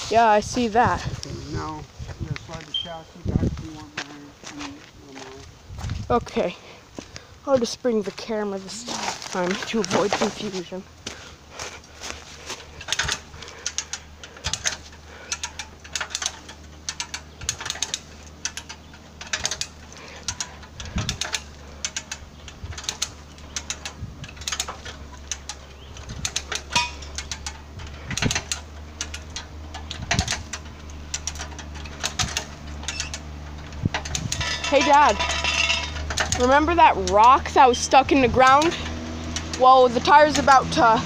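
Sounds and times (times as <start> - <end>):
steady low hum: 0.0 - 41.0
footsteps crunching on leaves and gravel: 3.4 - 6.1, 8.6 - 12.8.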